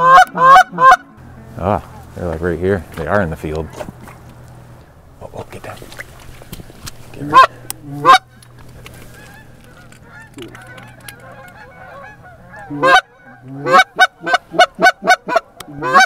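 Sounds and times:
geese honking: 0:00.0 - 0:02.2, 0:07.2 - 0:16.0.

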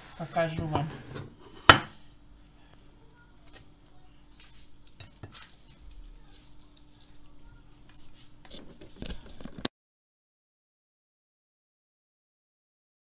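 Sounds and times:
crisp crust crackling: 0:02.8 - 0:09.7.

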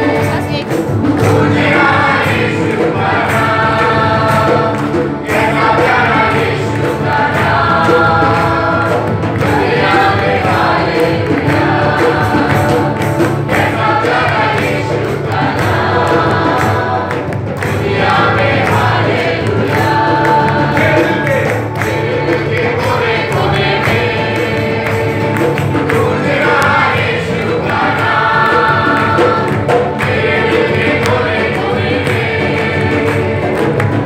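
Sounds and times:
acoustic guitar: 0:00.0 - 0:34.0
group singing worship song: 0:00.0 - 0:34.0
keyboard: 0:00.0 - 0:34.0.

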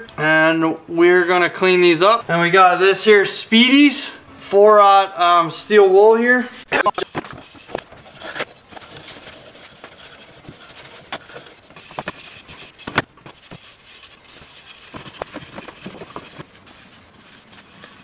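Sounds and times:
steel wool scrubbing metal: 0:07.4 - 0:18.0.

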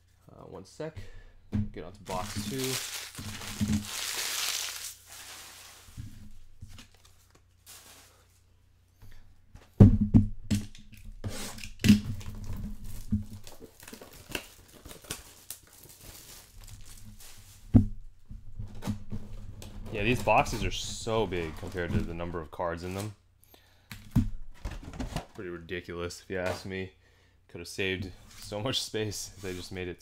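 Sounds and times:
plastic wrap tearing and crinkling: 0:02.0 - 0:06.0, 0:06.8 - 0:08.2, 0:12.8 - 0:17.6.

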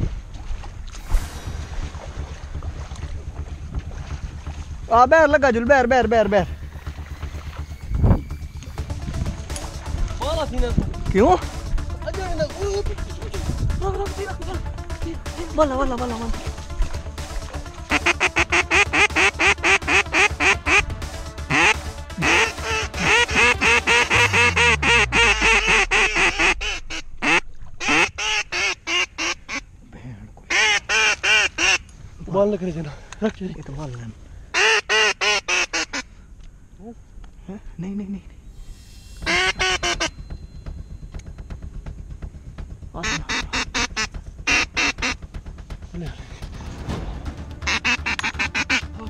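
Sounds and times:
duck quacking: 0:17.9 - 0:20.8, 0:21.5 - 0:29.7, 0:30.5 - 0:31.9, 0:34.5 - 0:36.1, 0:39.3 - 0:40.1, 0:43.0 - 0:45.2, 0:47.7 - 0:48.9
faint low hum falling in pitch: 0:19.9 - 0:29.9, 0:38.0 - 0:49.0.

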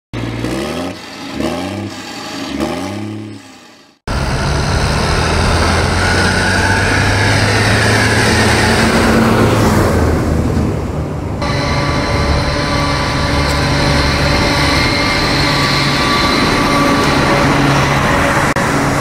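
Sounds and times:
engine revving: 0:00.2 - 0:19.0
tractor diesel engine passing: 0:00.2 - 0:19.0
whine falling in pitch: 0:11.4 - 0:18.5.

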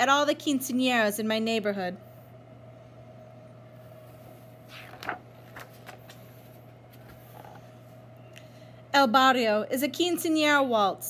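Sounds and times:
steady low hum: 0:00.0 - 0:11.0
book pages rustling: 0:04.6 - 0:07.8
page sliding: 0:04.7 - 0:07.7.

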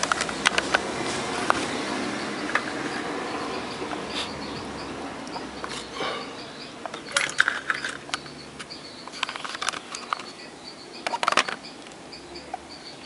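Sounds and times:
objects clicking and rattling: 0:05.6 - 0:10.4, 0:11.0 - 0:12.0.

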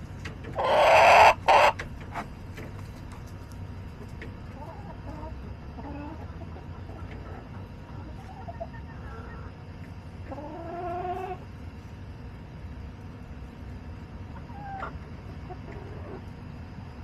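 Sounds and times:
low background hum: 0:00.0 - 0:17.0
hen calling: 0:00.6 - 0:01.8.

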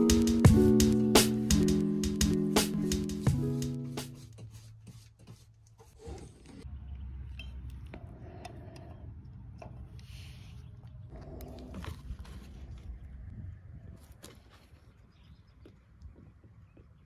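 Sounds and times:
guitar music: 0:00.0 - 0:04.2
bristle brush scratchy rubbing: 0:03.9 - 0:06.1.

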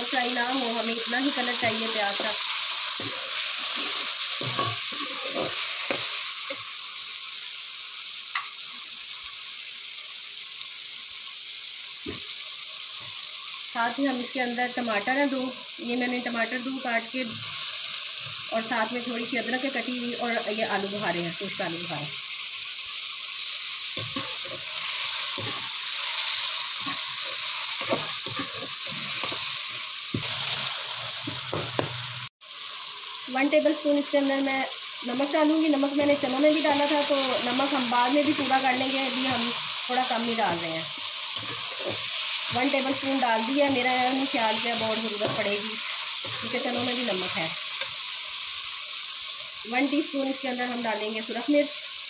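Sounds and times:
food sizzling in oil: 0:00.0 - 0:52.0
steel spoon scraping a pan: 0:01.3 - 0:06.6, 0:24.0 - 0:31.4, 0:35.7 - 0:48.0
metal spoon scraping pan: 0:03.0 - 0:06.1, 0:26.7 - 0:29.6.

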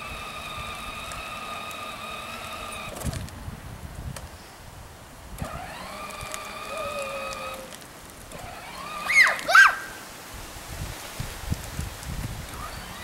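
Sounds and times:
toy motor whining: 0:00.0 - 0:03.0, 0:05.4 - 0:09.6, 0:12.5 - 0:13.0.

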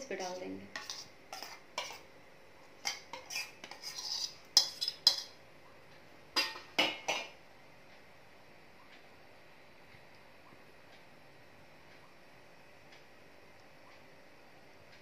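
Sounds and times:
metal spoon scraping and clinking: 0:00.1 - 0:02.0, 0:02.8 - 0:05.4.

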